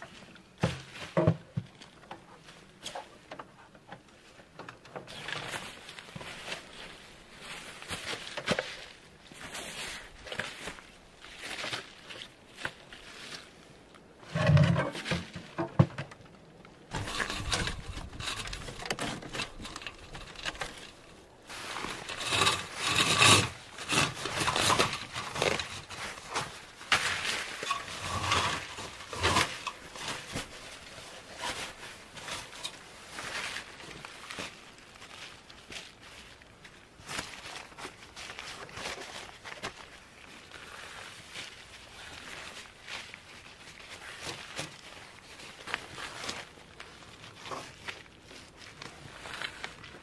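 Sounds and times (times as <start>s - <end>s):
fabric rustling and crinkling: 16.3s - 50.0s.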